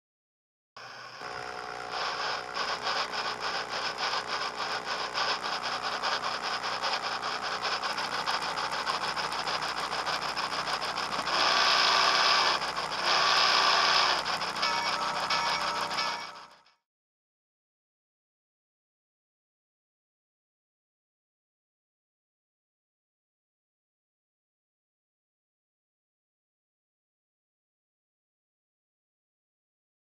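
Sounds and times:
steam chuffing: 0:00.8 - 0:16.4
steady hum: 0:00.8 - 0:16.6.

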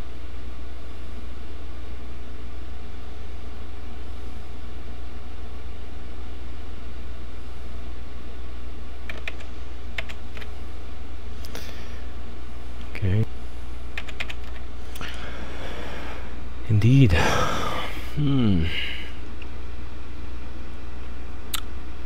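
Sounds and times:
low electrical hum: 0:00.0 - 0:22.0
computer keyboard clicks: 0:09.1 - 0:10.5, 0:14.0 - 0:14.6.

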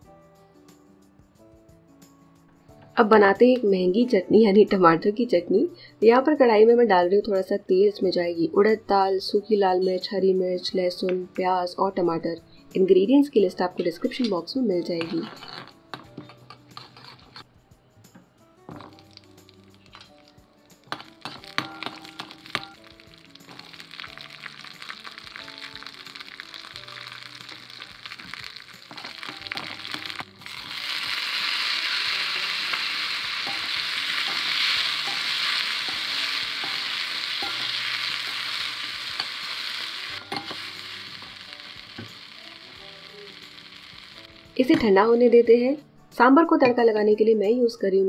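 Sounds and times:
hot oil sizzling: 0:14.9 - 0:17.4, 0:18.7 - 0:45.0.

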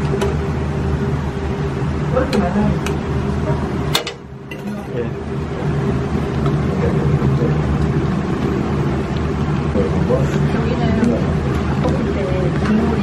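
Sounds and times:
gas burner rumbling: 0:00.0 - 0:13.0
spoon clinking on metal pan: 0:04.5 - 0:04.9.

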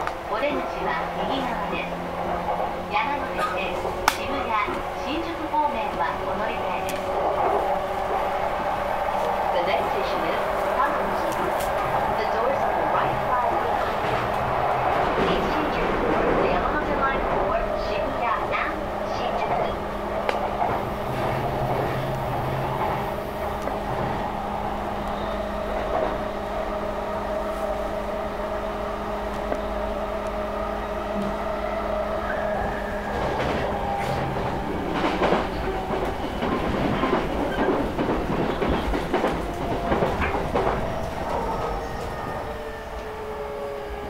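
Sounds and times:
train wheels clattering: 0:00.0 - 0:17.2, 0:32.3 - 0:43.1
train hum and rumble: 0:00.0 - 0:44.0.

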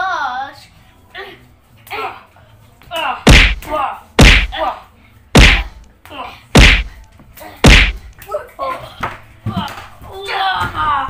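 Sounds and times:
hands slapping bodies: 0:02.9 - 0:04.6, 0:05.4 - 0:08.3.

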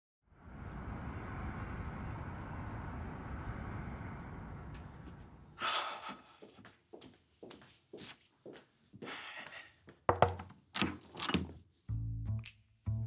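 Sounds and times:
low ambient rumble: 0:00.2 - 0:06.0
breathy rush of noise: 0:00.2 - 0:06.6.

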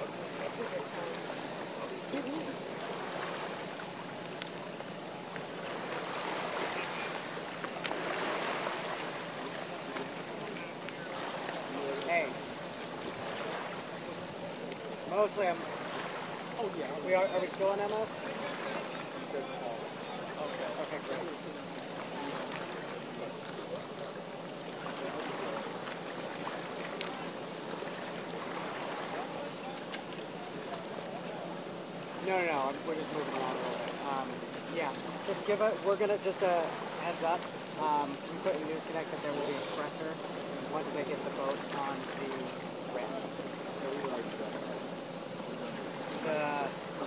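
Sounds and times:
faint voices: 0:00.0 - 0:47.0
outdoor background noise: 0:00.0 - 0:47.0
rushing splashing water: 0:00.0 - 0:47.0
water drips and ticks: 0:03.6 - 0:05.6, 0:06.6 - 0:08.1, 0:08.8 - 0:11.0, 0:12.0 - 0:13.2, 0:14.1 - 0:15.1, 0:21.8 - 0:28.4, 0:29.6 - 0:31.0, 0:33.7 - 0:39.2, 0:39.8 - 0:44.5.

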